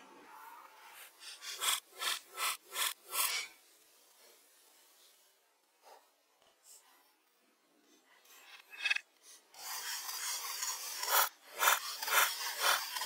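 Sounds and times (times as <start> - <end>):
hand tool rasping on wood: 1.2 - 3.5, 9.6 - 13.0.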